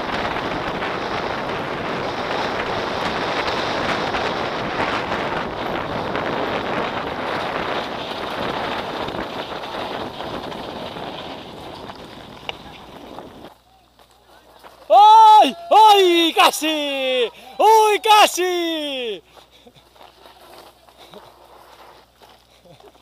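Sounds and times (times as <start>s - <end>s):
wind on microphone: 0.0s - 13.5s
bike tyres crunching on stones: 0.0s - 15.2s, 18.6s - 23.0s.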